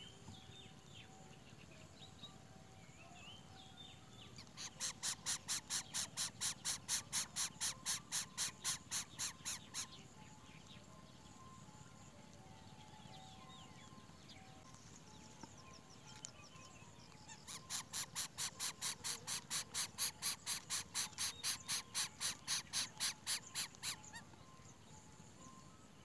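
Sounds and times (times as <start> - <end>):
faint chirps: 0.0 - 26.0
animal pulsed call: 4.4 - 10.4, 16.6 - 24.6.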